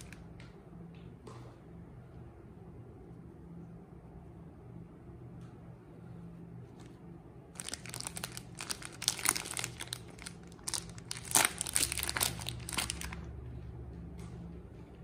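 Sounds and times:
soap wrapper crinkling: 7.6s - 13.3s.

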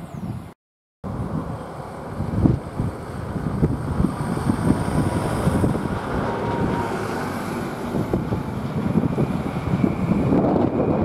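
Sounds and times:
diesel locomotives droning: 0.0s - 11.0s
wind buffeting microphone: 0.0s - 11.0s.

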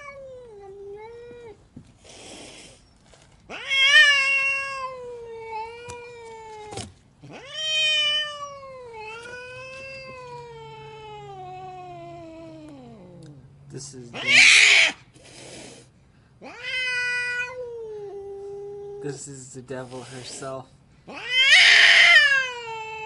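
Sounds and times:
angry cat yowling: 3.5s - 13.4s, 14.1s - 15.0s, 16.4s - 19.2s, 21.1s - 23.0s.

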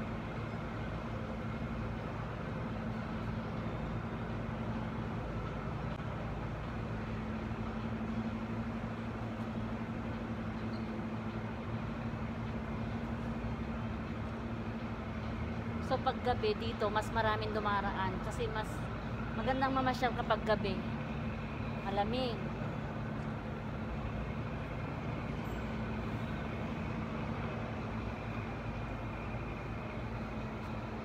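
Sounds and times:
city noise: 0.0s - 31.0s
low mechanical drone: 0.0s - 31.0s.

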